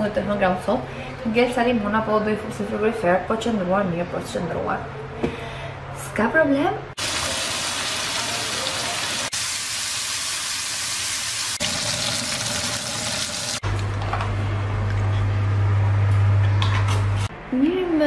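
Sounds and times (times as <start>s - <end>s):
food sizzling in a frying pan: 7.0s - 13.6s.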